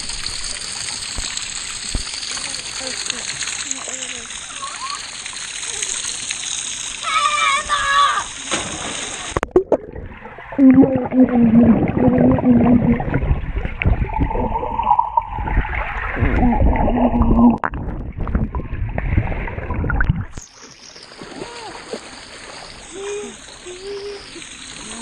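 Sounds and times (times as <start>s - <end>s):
water splashing and spraying: 0.0s - 25.0s
underwater sloshing and bubbling: 8.9s - 25.0s
low drawn-out humming tones: 9.7s - 20.4s.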